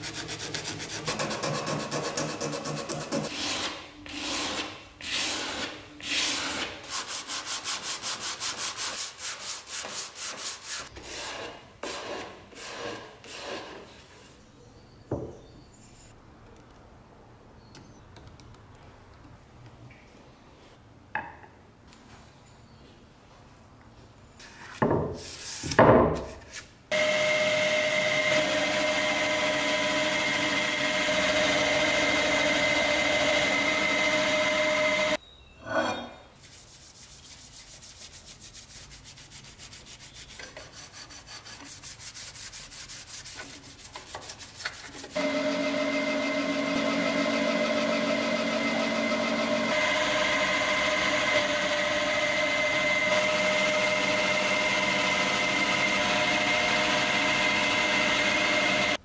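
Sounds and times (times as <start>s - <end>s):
electric power tool whining: 26.9s - 35.2s, 45.2s - 59.0s.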